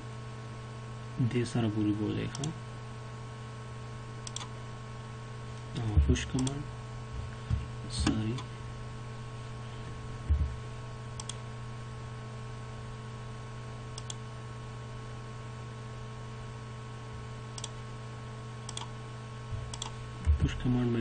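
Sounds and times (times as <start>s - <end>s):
low electrical hum: 0.0s - 21.0s
computer mouse clicks: 4.2s - 4.5s, 6.4s - 6.6s, 11.2s - 11.4s, 14.0s - 14.2s, 17.6s - 17.8s, 18.7s - 18.9s, 19.7s - 19.9s
dull low thump: 10.2s - 10.6s.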